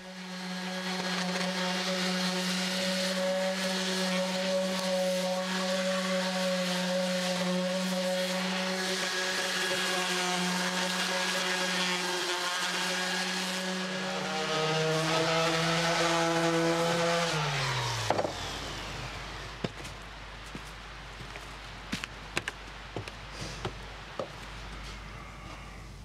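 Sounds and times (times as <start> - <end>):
power tool motor running: 0.0 - 19.9.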